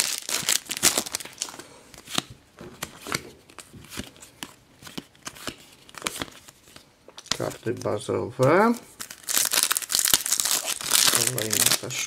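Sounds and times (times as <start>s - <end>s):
foil wrapper crinkle: 0.0s - 1.6s, 9.0s - 12.0s.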